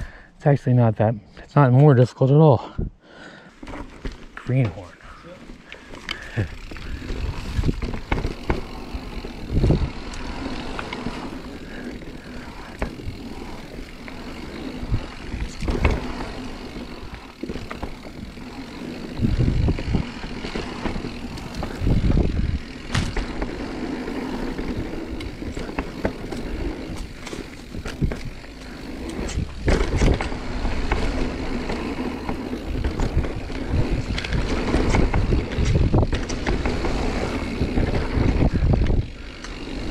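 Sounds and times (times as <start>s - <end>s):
bike tyres rolling on dirt: 3.3s - 39.9s
wind buffeting microphone: 6.4s - 10.3s, 16.7s - 23.6s, 24.6s - 39.9s
bike knocks and rattles: 6.4s - 39.9s.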